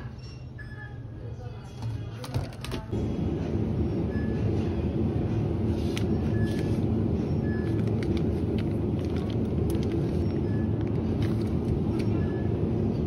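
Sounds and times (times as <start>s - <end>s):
steady low hum: 2.9s - 13.0s.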